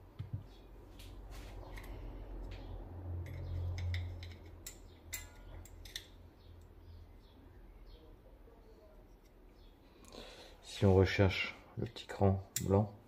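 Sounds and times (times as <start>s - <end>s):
small metal parts clinking: 3.2s - 6.2s.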